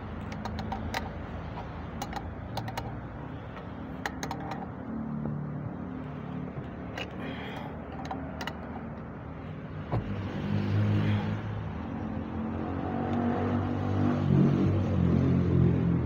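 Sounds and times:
engine running hum: 0:00.0 - 0:16.0
wrench clicking on metal pipe: 0:00.2 - 0:04.8, 0:06.9 - 0:09.0.

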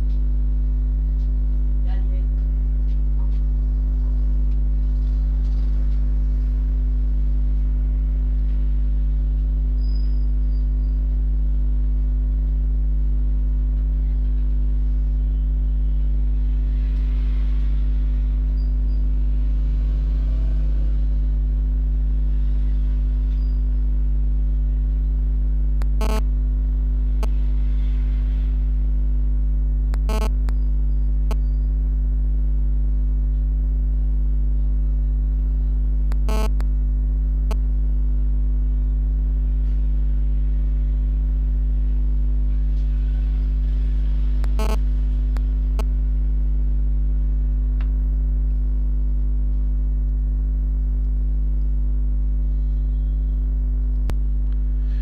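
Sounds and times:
electrical mains hum: 0:00.0 - 0:55.0
sharp clicks: 0:25.8 - 0:26.2, 0:29.9 - 0:30.6, 0:36.1 - 0:36.7.

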